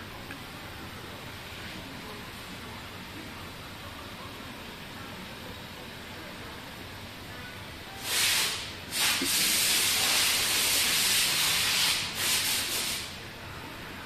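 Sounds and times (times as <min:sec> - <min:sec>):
pressurised spray hissing: 0:08.0 - 0:13.1.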